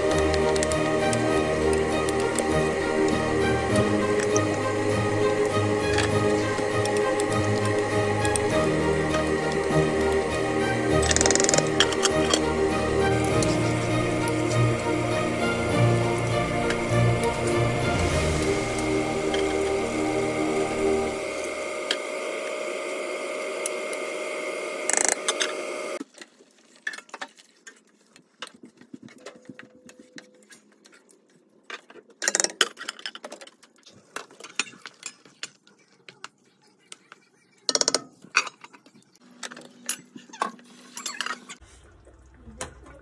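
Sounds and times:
steady multi-tone hum: 0:00.0 - 0:26.0.

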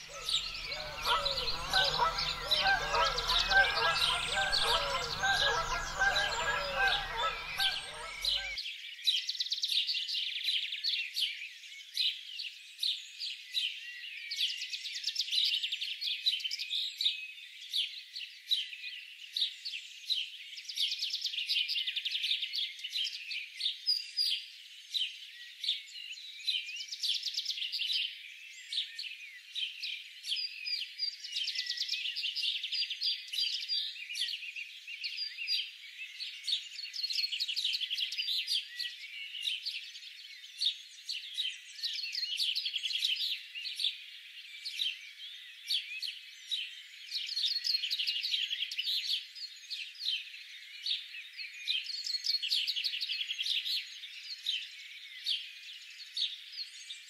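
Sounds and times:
small birds chirping: 0:00.0 - 0:08.6
waterbirds honking: 0:00.0 - 0:08.6.

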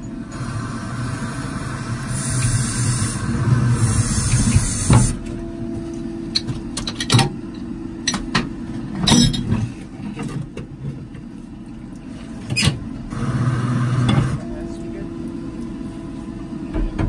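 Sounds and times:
power unit humming: 0:00.0 - 0:09.5, 0:11.5 - 0:17.0
metal clanks and knocks: 0:08.1 - 0:10.7.

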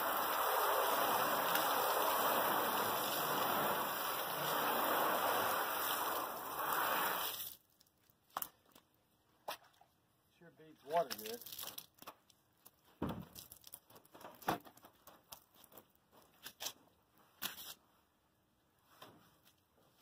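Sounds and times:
hose spray hitting metal: 0:00.0 - 0:07.5.

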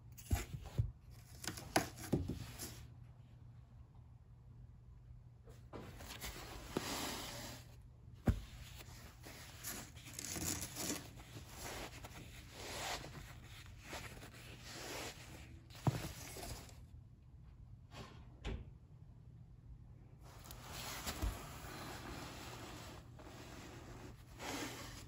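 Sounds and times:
fabric rustling and swishing: 0:20.3 - 0:25.0.

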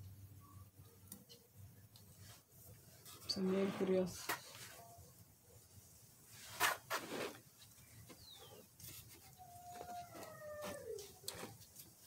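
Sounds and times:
plant stems rustling: 0:02.0 - 0:05.0, 0:06.2 - 0:12.0
rooster crowing: 0:09.4 - 0:11.0.

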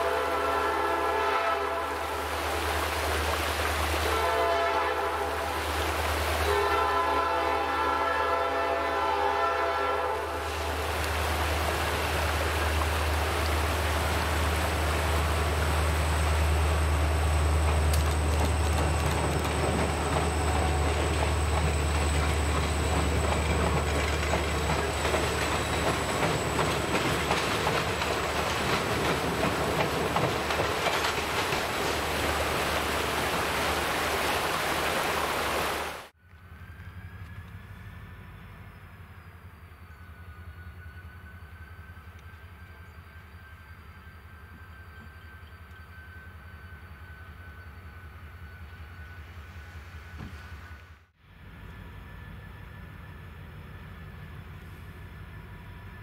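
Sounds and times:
train horn blast: 0:00.0 - 0:02.3, 0:04.0 - 0:05.7, 0:06.4 - 0:10.8
locomotive engine hum: 0:00.0 - 0:56.0
train wheels clattering: 0:17.0 - 0:32.4.

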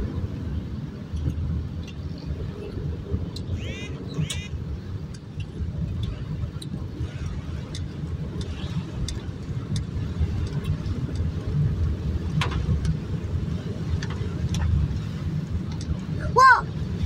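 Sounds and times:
engine and tyres rumbling: 0:00.0 - 0:17.0
rain on windshield: 0:00.1 - 0:17.0
light ticks: 0:03.3 - 0:03.5, 0:05.1 - 0:13.1, 0:13.8 - 0:16.1.

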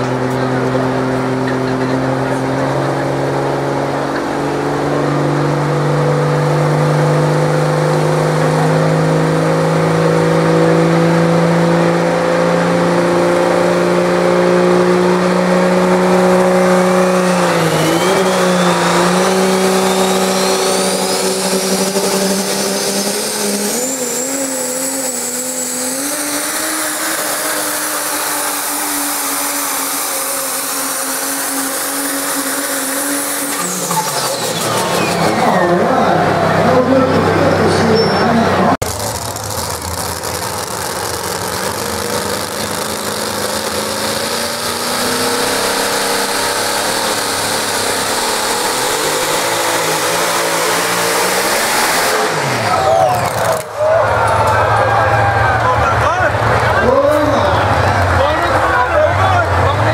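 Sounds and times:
diesel truck engine under load: 0:00.0 - 0:59.9
turbocharger whistle: 0:14.2 - 0:59.9.

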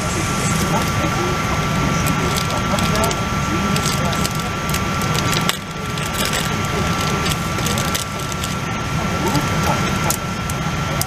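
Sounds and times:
airplane cabin rumble: 0:00.0 - 0:11.0
crackling clicks: 0:02.0 - 0:08.7.

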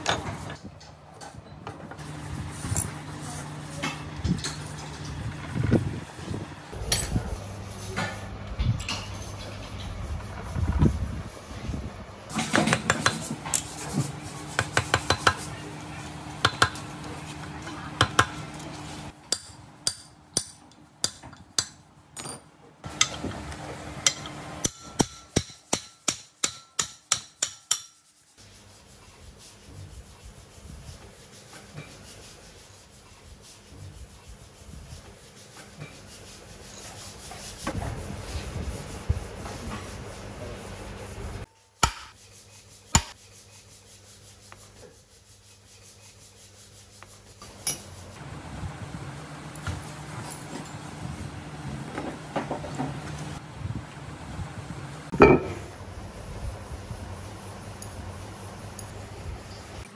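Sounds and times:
hammer striking metal punch: 0:16.4 - 0:16.8, 0:19.3 - 0:23.3, 0:24.0 - 0:28.0, 0:41.8 - 0:42.2, 0:55.1 - 0:55.7
rubbing on metal: 0:42.1 - 0:48.2.

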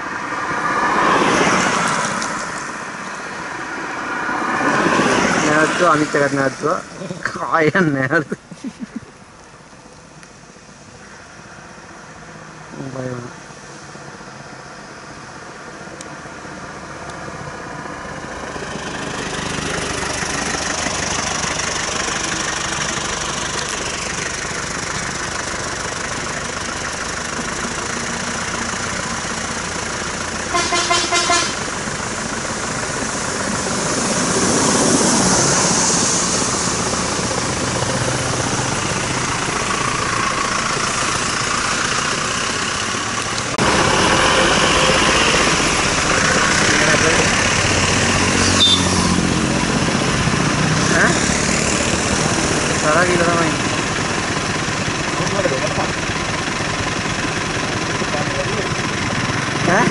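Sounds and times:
heavy vehicle passing: 0:00.0 - 0:08.3, 0:11.6 - 0:59.9
road traffic: 0:00.0 - 0:59.9
vehicle horn short toots: 0:30.5 - 0:31.6, 0:48.4 - 0:49.0.

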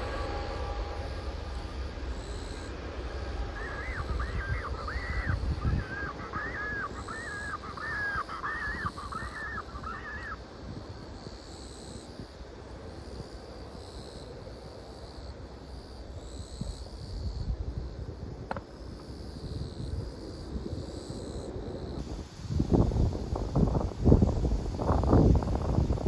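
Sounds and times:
low rumble: 0:00.0 - 0:06.2
crow cawing: 0:03.4 - 0:10.4.

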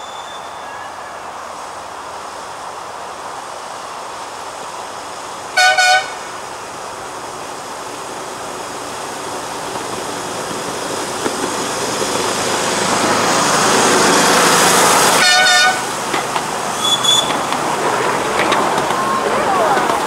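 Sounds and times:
train horn toot: 0:05.6 - 0:06.2, 0:15.2 - 0:15.8
miniature train running on rails: 0:06.7 - 0:20.0.

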